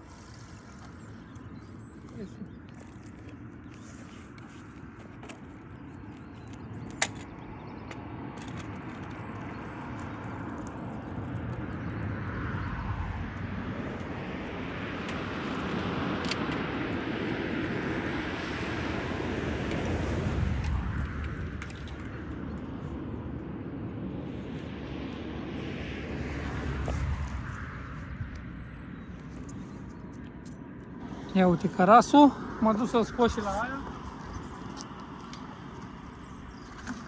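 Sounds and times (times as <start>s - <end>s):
passing vehicle engine: 24.7s - 29.8s.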